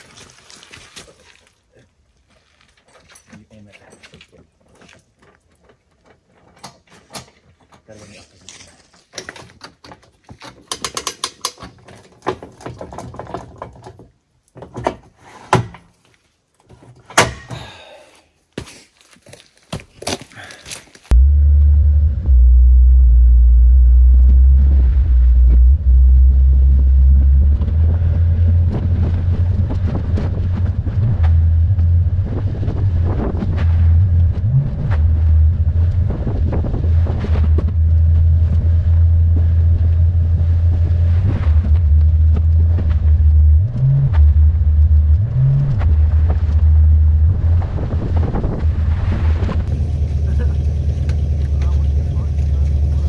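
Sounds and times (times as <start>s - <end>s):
road noise on gravel: 0.0s - 9.4s, 18.6s - 53.0s
wind buffeting microphone: 27.5s - 39.5s, 47.3s - 49.7s.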